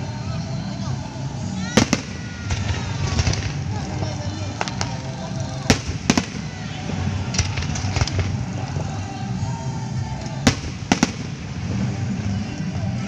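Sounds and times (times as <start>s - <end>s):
steady low rumble: 0.0s - 13.0s
firework shells bursting: 1.8s - 9.0s, 10.2s - 12.0s.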